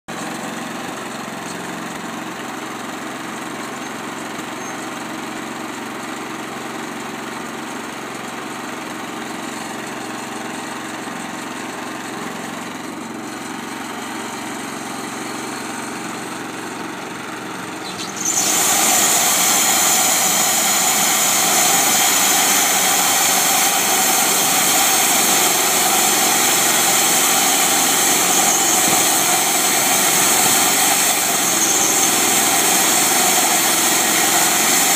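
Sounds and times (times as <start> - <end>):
small engine running: 0.1 - 34.9
saw blade hissing through wood: 17.8 - 34.9.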